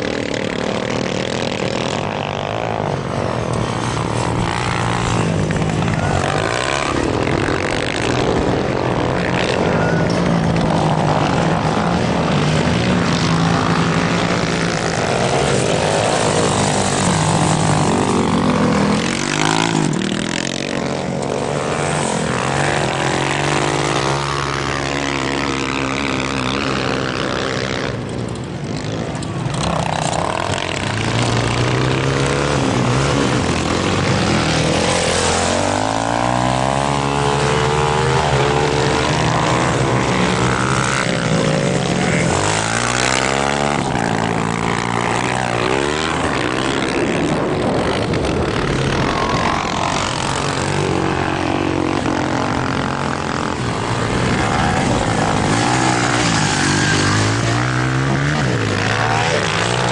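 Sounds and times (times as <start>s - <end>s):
motocross bike engines revving: 0.0s - 59.9s.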